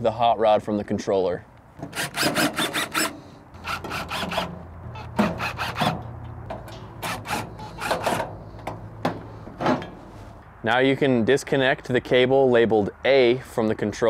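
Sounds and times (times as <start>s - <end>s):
cordless drill motor humming: 1.8s - 4.4s
drill bit scraping sheet metal: 1.8s - 6.0s, 6.8s - 8.6s.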